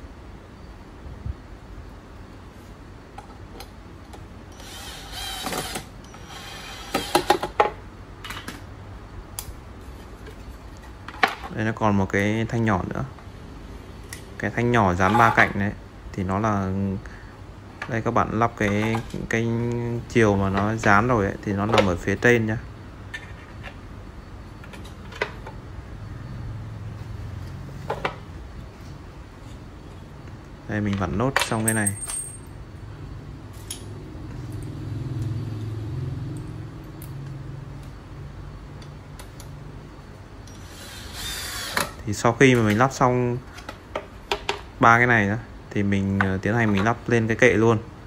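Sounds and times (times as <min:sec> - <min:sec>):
steady low hum: 0:00.0 - 0:48.0
screwdriver scraping rasp: 0:04.6 - 0:07.3.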